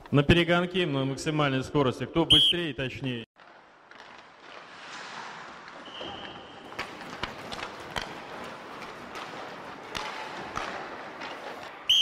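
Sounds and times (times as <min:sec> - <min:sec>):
hockey sticks and pucks clicking: 0:03.4 - 0:12.0
skate blades scraping ice: 0:03.4 - 0:12.0.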